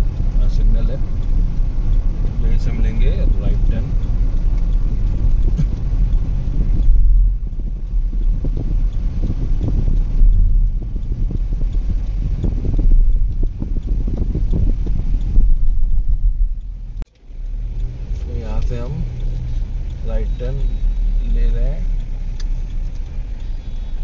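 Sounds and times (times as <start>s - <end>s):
car road and engine noise: 0.0s - 24.0s
uneven buffeting: 1.0s - 18.2s.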